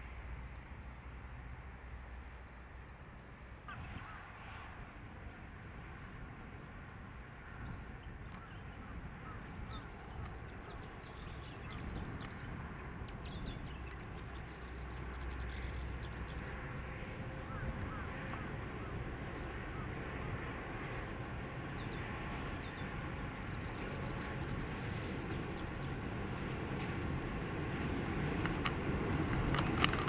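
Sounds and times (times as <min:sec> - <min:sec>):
diesel train approaching: 0:00.0 - 0:30.0
small birds chirping: 0:07.7 - 0:17.7.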